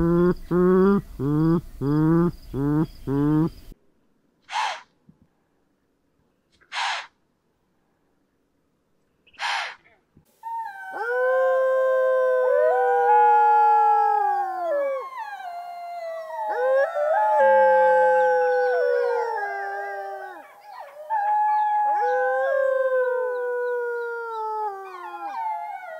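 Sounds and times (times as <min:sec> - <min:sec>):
wolves howling: 0:10.5 - 0:25.9.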